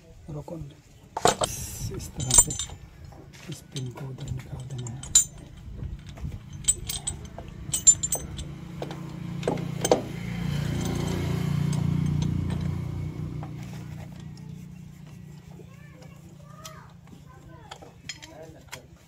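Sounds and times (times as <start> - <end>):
metal brake plates clinking: 1.2 - 14.3
low steady hum: 1.3 - 16.5.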